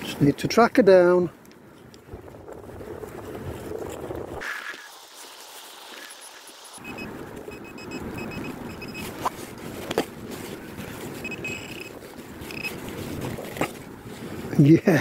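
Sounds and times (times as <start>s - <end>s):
wind rumble: 1.3s - 14.8s
pinpointer high beeps: 6.8s - 9.2s, 11.2s - 11.9s, 12.5s - 12.7s.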